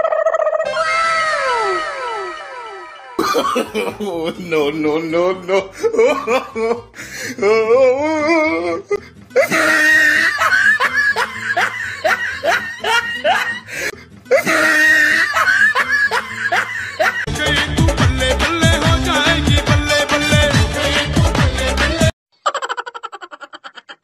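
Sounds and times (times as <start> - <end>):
person laughing: 0.0 - 17.3, 22.4 - 24.0
music with a beat: 17.3 - 22.1.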